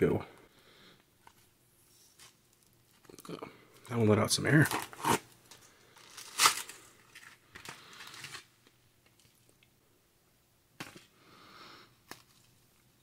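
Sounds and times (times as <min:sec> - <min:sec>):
plastic pouch crinkling: 0:04.6 - 0:08.5.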